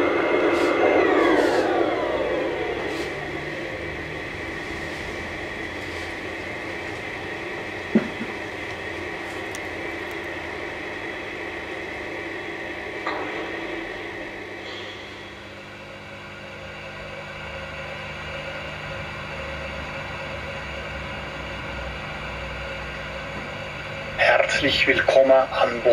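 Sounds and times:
model train whirring: 0:00.0 - 0:16.2.

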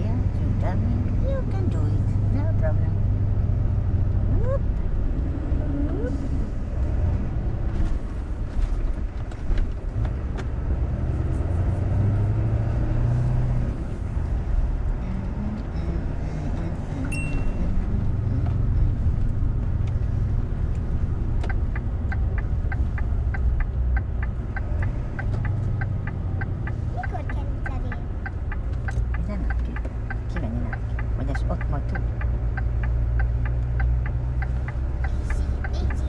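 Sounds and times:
diesel engine rumbling: 0:00.0 - 0:36.0
turn indicator ticking: 0:14.2 - 0:36.0
high beep: 0:17.1 - 0:17.7.

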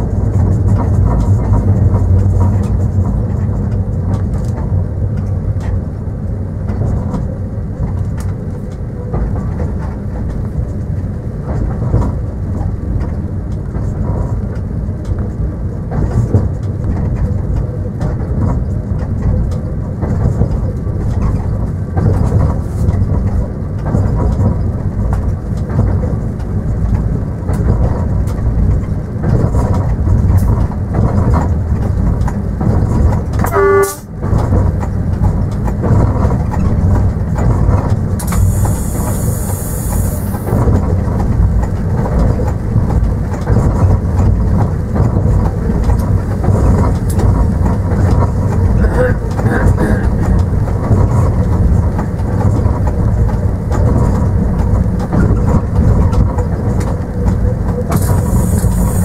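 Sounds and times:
train rumble with wheel clatter: 0:00.0 - 0:59.0
train horn toot: 0:33.4 - 0:34.2
air hiss: 0:38.3 - 0:40.5, 0:58.0 - 0:59.0.

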